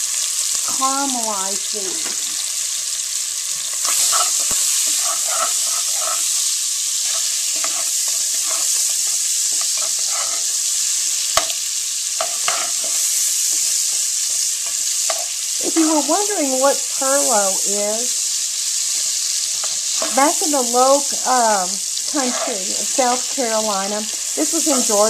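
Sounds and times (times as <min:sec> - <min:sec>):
onions sizzling in a pot: 0:00.0 - 0:25.0
utensil stirring: 0:03.7 - 0:10.5.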